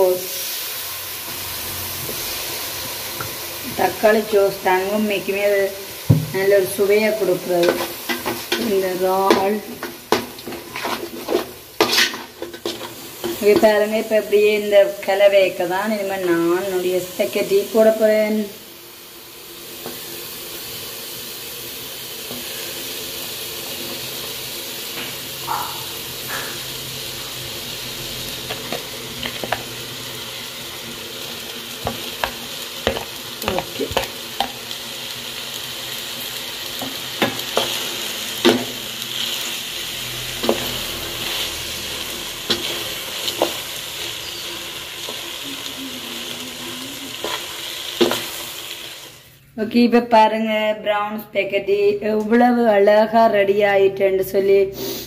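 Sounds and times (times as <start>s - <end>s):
sauce sizzling in a pot: 0.0s - 49.6s, 54.7s - 55.0s
spoon scraping metal pot: 10.1s - 13.6s.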